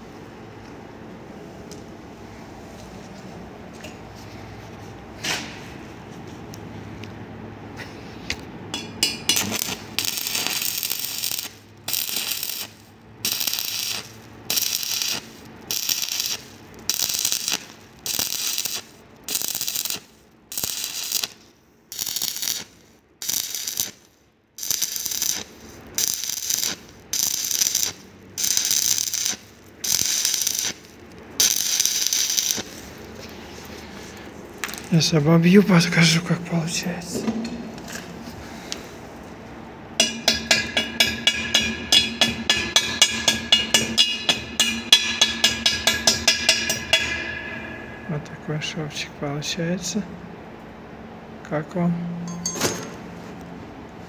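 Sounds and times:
welding arc crackling: 0:08.8 - 0:35.2, 0:39.9 - 0:47.6.

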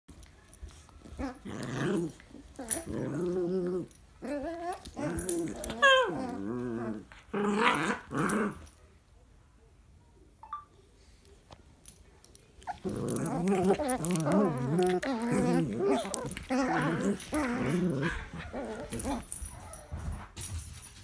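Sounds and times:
dogs growling: 0:01.0 - 0:08.7, 0:12.6 - 0:19.9.

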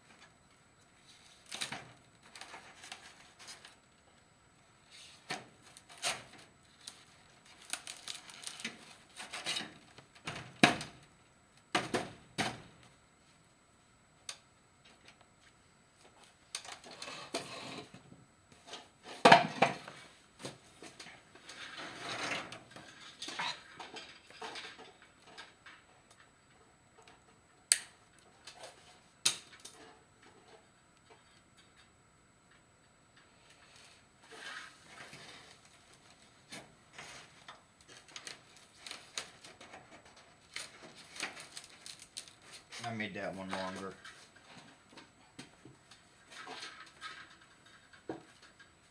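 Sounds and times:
wire scraping against foam board: 0:34.2 - 0:35.6.

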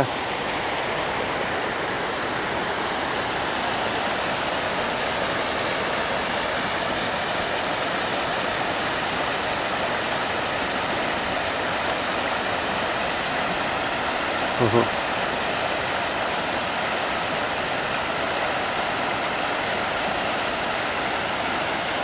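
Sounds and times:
floodwater rushing in creek: 0:00.0 - 0:22.0.

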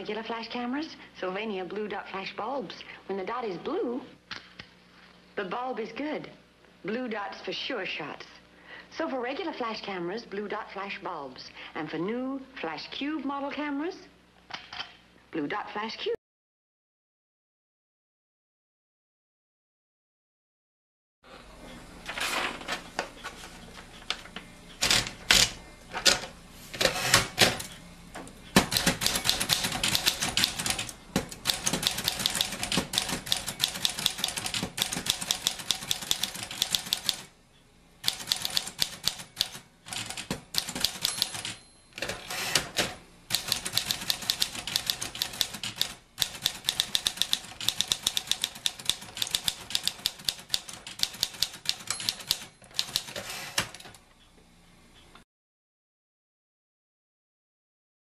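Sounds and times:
typewriter keys clacking: 0:28.6 - 0:37.2, 0:38.0 - 0:42.2, 0:43.3 - 0:53.7.

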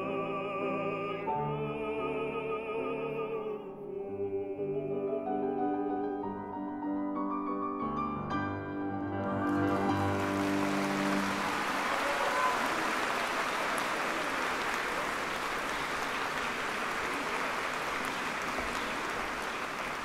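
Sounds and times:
audience applauding: 0:09.1 - 0:20.0.

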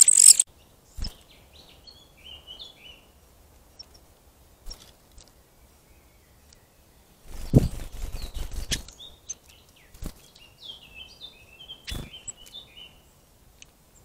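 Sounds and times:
bird chirping: 0:00.0 - 0:03.1, 0:03.7 - 0:04.1, 0:04.7 - 0:13.2.

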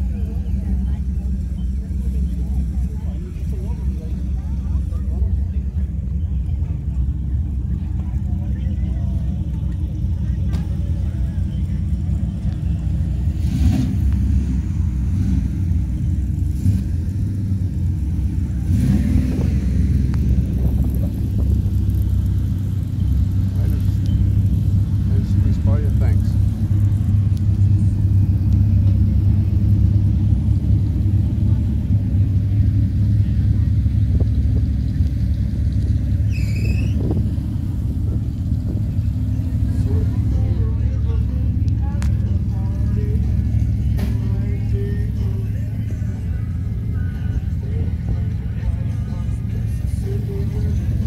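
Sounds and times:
car engine rumbling: 0:00.0 - 0:51.0
short high-pitched call: 0:36.3 - 0:37.0.

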